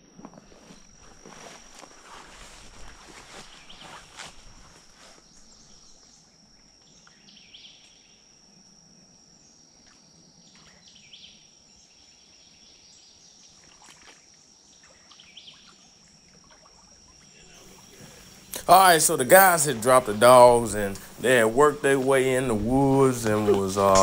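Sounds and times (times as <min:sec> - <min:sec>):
bird calling: 0:17.5 - 0:24.0.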